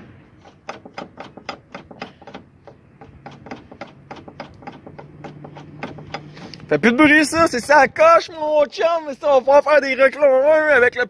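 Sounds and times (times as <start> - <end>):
brake rotor clicking: 0.3 - 6.8.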